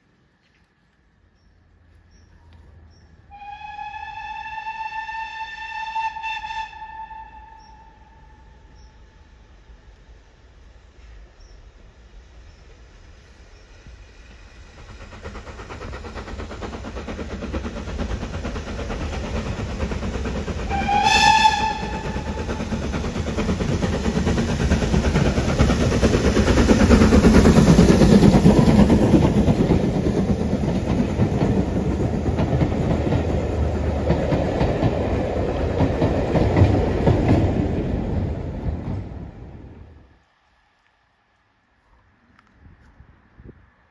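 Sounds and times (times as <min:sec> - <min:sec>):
steam locomotive passing: 0:00.0 - 0:43.9
steam locomotive whistle: 0:03.3 - 0:08.7, 0:20.7 - 0:22.6.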